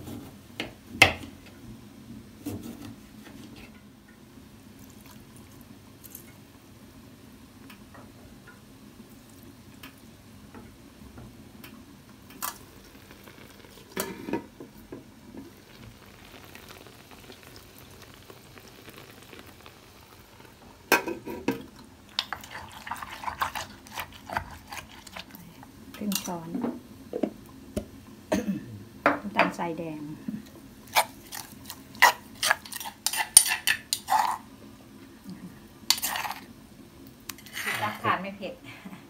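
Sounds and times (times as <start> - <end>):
spoon stirring and scraping in bowl: 12.3 - 14.6, 21.0 - 26.4, 30.8 - 34.5, 35.9 - 36.5, 37.3 - 38.0.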